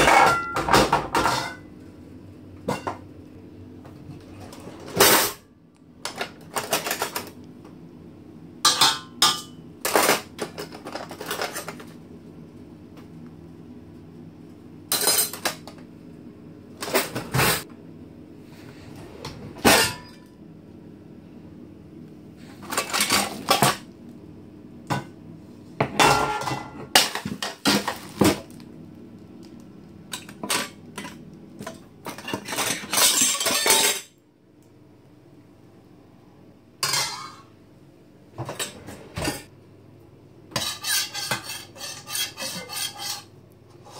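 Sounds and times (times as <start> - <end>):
cutlery and pots clattering: 0.0 - 1.7, 2.6 - 3.0, 4.4 - 5.4, 8.7 - 11.9, 14.9 - 15.8, 19.6 - 20.3, 25.8 - 28.0, 30.1 - 34.2, 36.8 - 37.5, 40.5 - 43.3.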